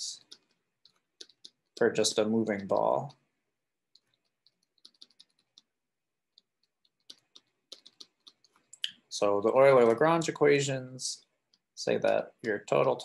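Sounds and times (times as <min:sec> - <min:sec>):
stylus tapping on tablet screen: 0:00.2 - 0:08.8, 0:11.2 - 0:12.5.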